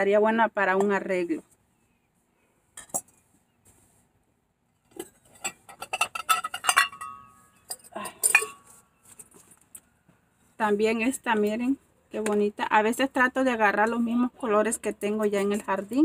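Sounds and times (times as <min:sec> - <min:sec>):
ceramic flower pots clinking: 0:02.7 - 0:03.2, 0:04.8 - 0:09.8.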